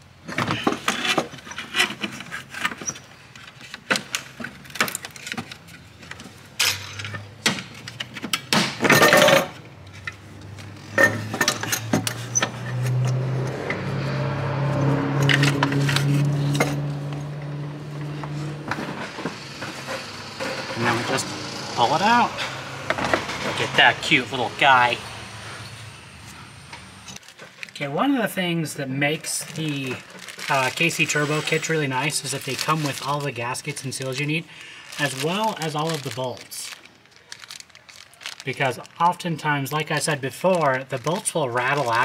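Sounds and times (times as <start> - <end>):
metal clanking and scraping: 0.3 - 13.8, 15.2 - 17.4, 18.0 - 24.4.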